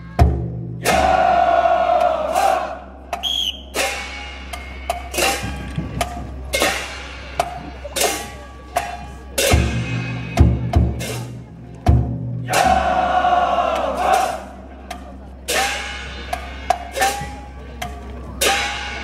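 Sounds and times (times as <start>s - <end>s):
deep drum beats: 0.0s - 19.0s
drum strikes: 0.0s - 19.0s
voices shouting together: 0.8s - 2.9s, 12.4s - 14.6s.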